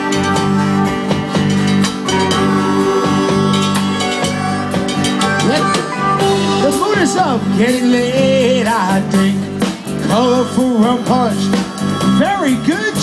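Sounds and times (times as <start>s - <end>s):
drum kit steady beat: 0.0s - 13.0s
harmonica playing lead: 0.0s - 13.0s.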